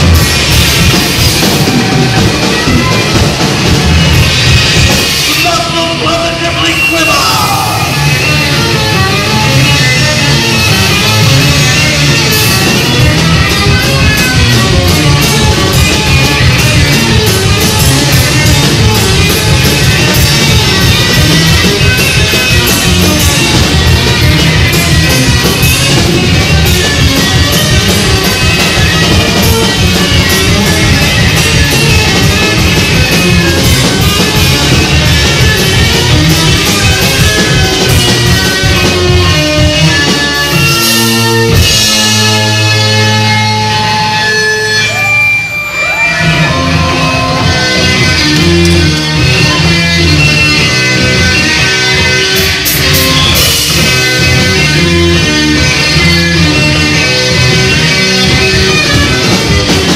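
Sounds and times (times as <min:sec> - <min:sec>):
live rock band playing: 0:00.0 - 0:59.9.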